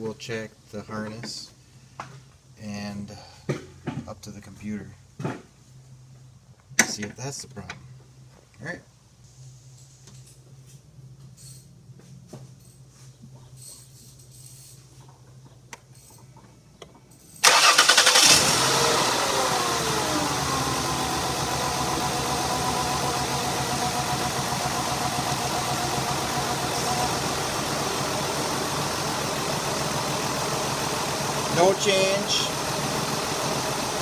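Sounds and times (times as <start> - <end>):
engine cranking: 17.4 - 19.3
misfiring engine idling: 17.4 - 34.0.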